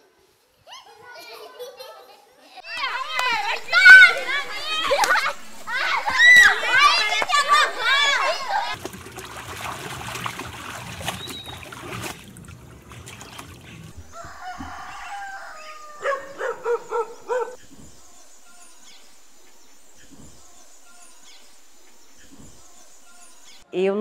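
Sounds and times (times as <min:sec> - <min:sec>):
chicken calling: 0:13.9 - 0:17.9.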